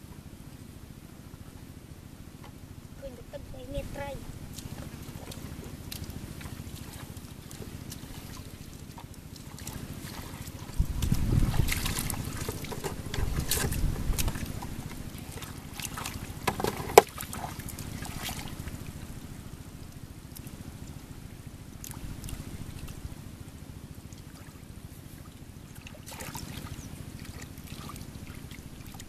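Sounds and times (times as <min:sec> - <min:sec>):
muddy water splashing: 0:02.3 - 0:29.0
wind buffeting microphone: 0:10.6 - 0:15.2.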